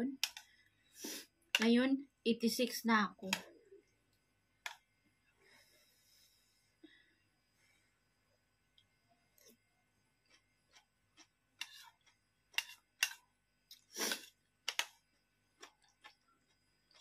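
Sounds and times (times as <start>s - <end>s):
metal spoon scraping a bowl: 11.6s - 11.9s, 12.6s - 13.2s.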